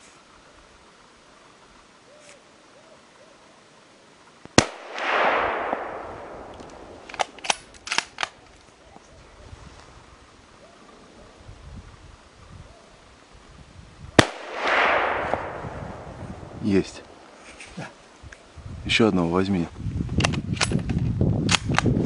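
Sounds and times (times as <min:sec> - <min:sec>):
close gunshot: 0:04.6 - 0:08.3, 0:14.2 - 0:17.1
faint sharp shots: 0:04.6 - 0:08.4, 0:14.2 - 0:17.3.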